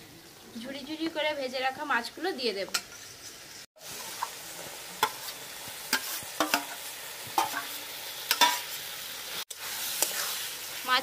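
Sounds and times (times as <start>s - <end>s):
masala sizzling in a pan: 0.0s - 11.0s
metal spatula scraping a pan: 2.8s - 11.0s.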